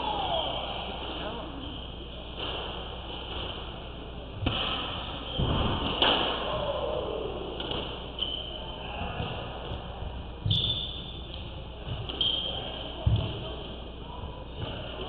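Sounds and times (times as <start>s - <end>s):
squash ball smacking rackets and walls: 4.4s - 6.7s, 7.5s - 13.7s.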